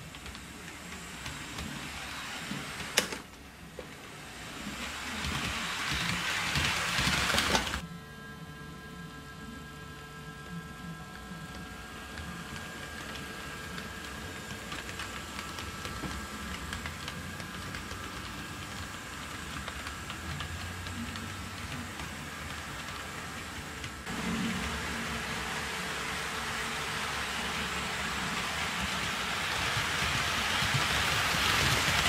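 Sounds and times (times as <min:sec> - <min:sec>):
model train motor whine: 0:00.2 - 0:03.2, 0:04.2 - 0:07.8.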